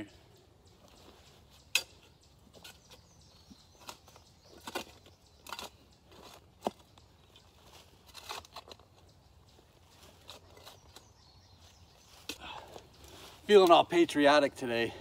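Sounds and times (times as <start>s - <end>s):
shovel scraping and knocking soil: 0.9s - 9.0s.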